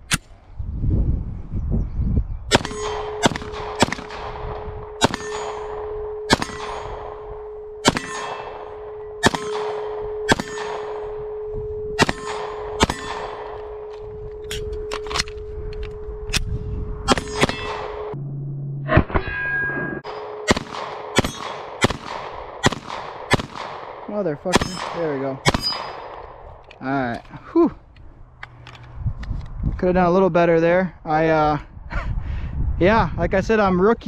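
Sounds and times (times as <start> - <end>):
pistol shots: 2.5 - 11.4, 12.0 - 14.0, 17.1 - 18.1, 20.0 - 26.4
steel targets ringing: 2.6 - 3.9, 4.8 - 15.1, 17.1 - 18.2.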